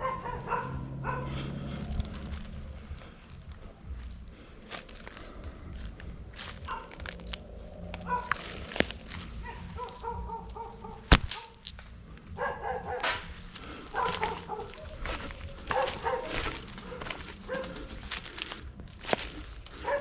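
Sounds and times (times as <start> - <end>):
sharp crack: 11.1 - 11.8.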